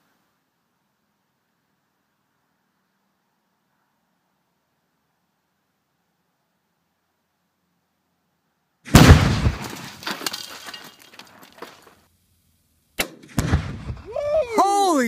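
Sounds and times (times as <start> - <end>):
loud explosive blast: 8.9 - 9.6, 13.4 - 14.2
sharp crack: 8.9 - 11.8, 13.0 - 14.7.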